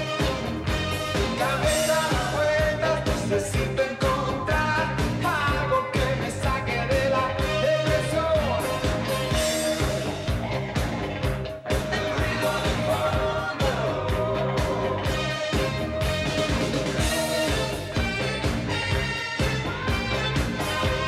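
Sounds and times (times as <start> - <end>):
saxophone horn section: 0.0 - 3.3, 7.1 - 10.6, 11.7 - 21.0
live rock band playing: 0.0 - 21.0
person singing: 1.1 - 10.4, 11.7 - 17.9, 19.6 - 21.0.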